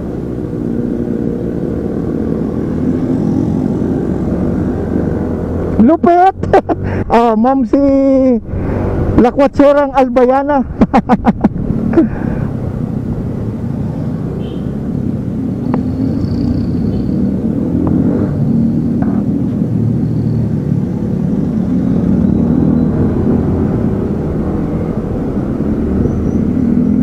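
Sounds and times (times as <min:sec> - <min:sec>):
wind rumble on microphone: 0:06.4 - 0:27.0.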